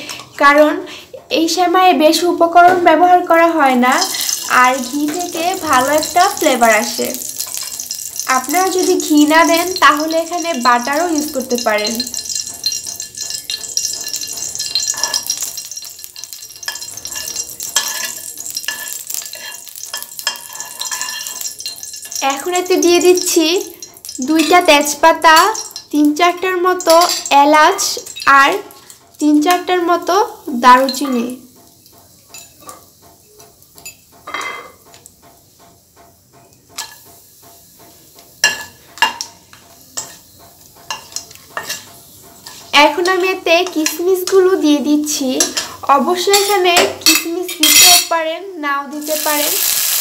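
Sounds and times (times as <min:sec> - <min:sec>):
oil sizzling in pan: 0:00.0 - 0:50.0
spatula scraping pan: 0:03.8 - 0:25.9, 0:30.0 - 0:44.6.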